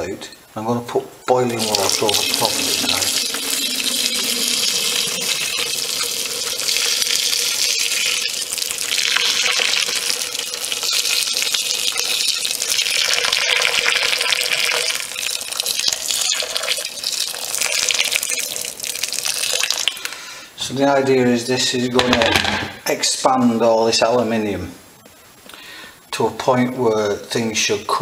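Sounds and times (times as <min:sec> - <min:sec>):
water pouring and splashing: 0:01.5 - 0:20.0.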